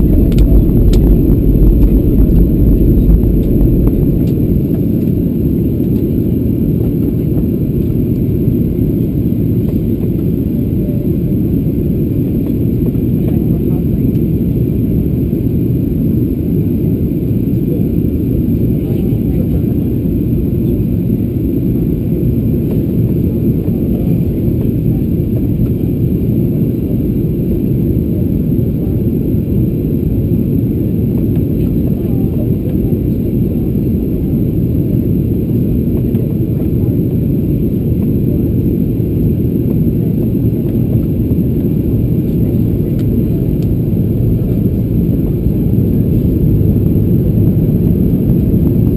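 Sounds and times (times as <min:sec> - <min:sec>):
airflow over fuselage: 0:00.0 - 0:48.9
jet engines rumbling: 0:00.0 - 0:48.9.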